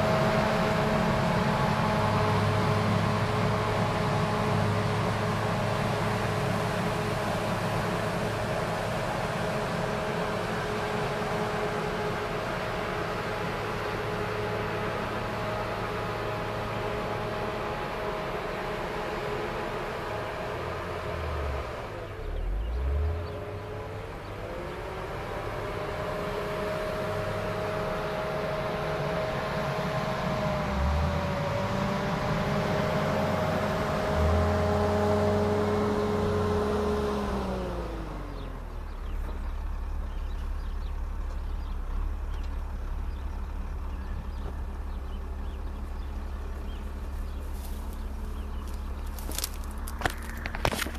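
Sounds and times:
wheel loader diesel engine revving: 0.0 - 50.9
low steady rumble: 37.5 - 50.9.

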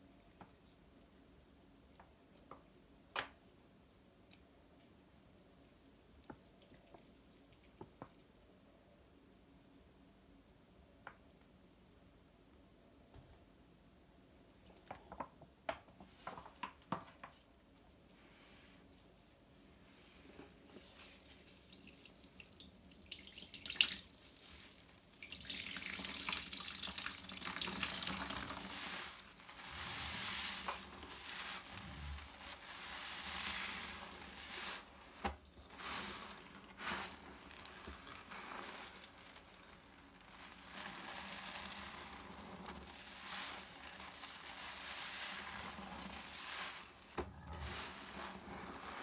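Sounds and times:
small wet clicks: 0.1 - 13.2
sponge squelching: 18.9 - 49.0.

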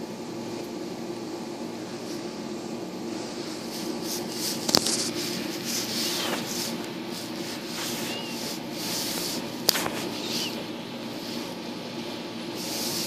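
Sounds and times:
rubbing and scratching: 3.6 - 11.6, 12.5 - 13.0.

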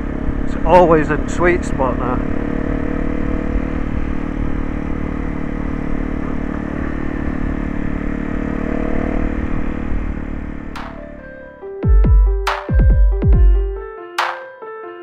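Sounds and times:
wind and road noise: 0.0 - 11.8
motorcycle engine running: 0.0 - 13.7.

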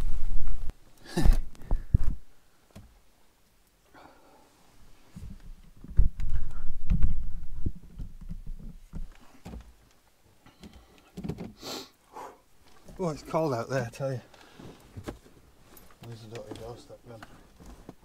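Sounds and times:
sharp sniff: 11.6 - 12.4
clothing rustle: 12.6 - 18.0.

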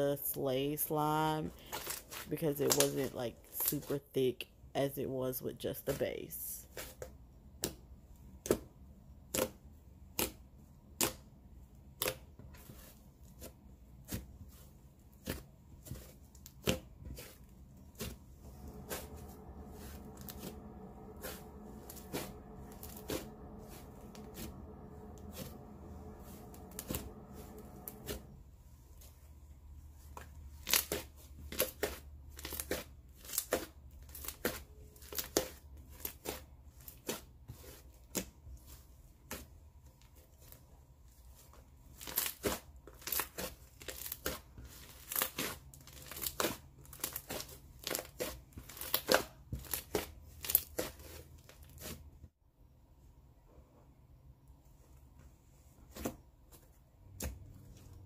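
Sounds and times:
faint steady hum: 18.2 - 28.5.

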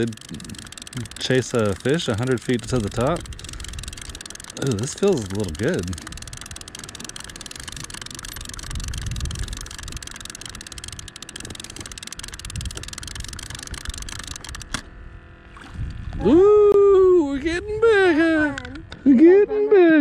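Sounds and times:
fishing reel whirring and clicking: 0.0 - 14.9.

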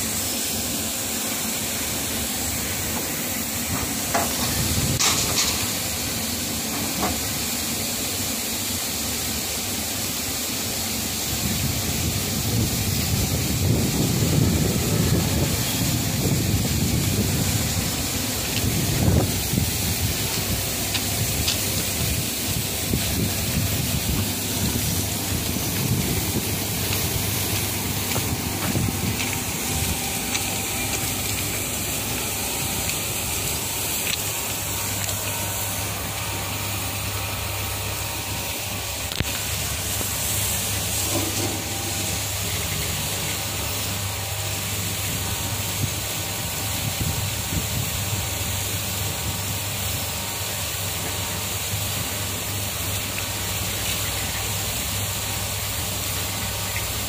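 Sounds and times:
water jets spraying: 0.0 - 57.0
steady low hum: 10.6 - 57.0.

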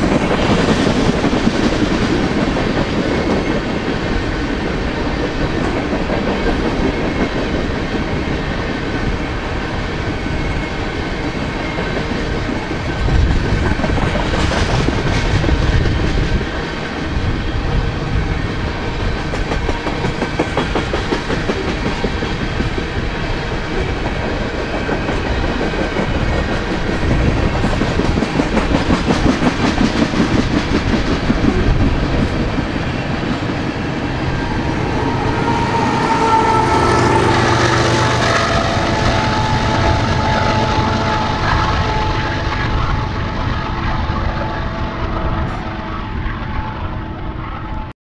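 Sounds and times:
train wheels clicking over rails: 0.0 - 47.5
held horn-like tone: 33.8 - 47.9.

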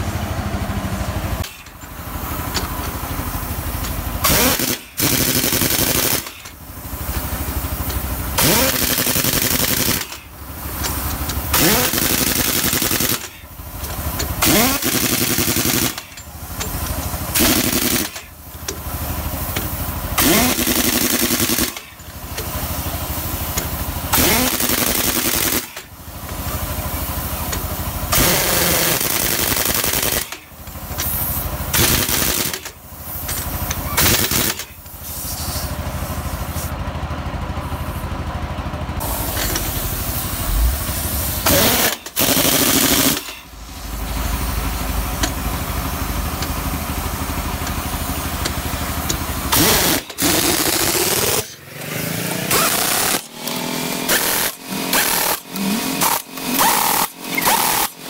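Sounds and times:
impact wrench hammering: 3.8 - 18.8, 19.5 - 22.6, 23.5 - 25.9, 27.5 - 34.8, 40.5 - 43.5, 45.2 - 45.4, 48.4 - 51.6, 52.5 - 58.0
mechanical running noise: 39.0 - 58.0.

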